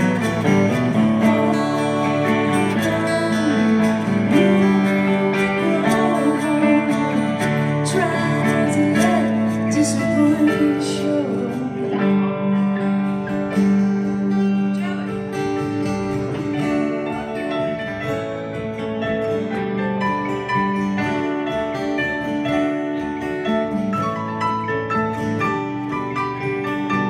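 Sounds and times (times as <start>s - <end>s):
acoustic guitar: 0.0s - 27.0s
keyboard chords: 0.0s - 27.0s.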